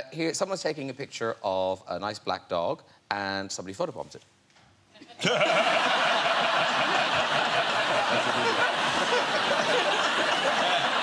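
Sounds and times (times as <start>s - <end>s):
studio audience laughing: 5.2s - 11.0s.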